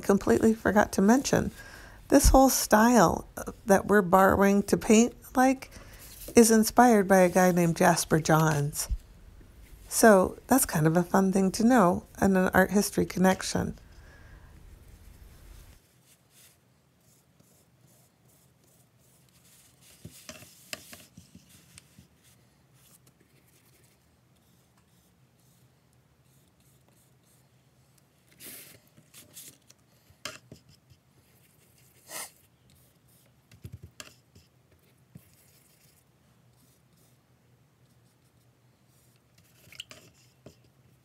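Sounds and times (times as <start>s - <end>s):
paintbrush scraping on paper: 0.0s - 8.7s, 14.9s - 27.5s, 34.0s - 37.2s, 37.9s - 40.8s.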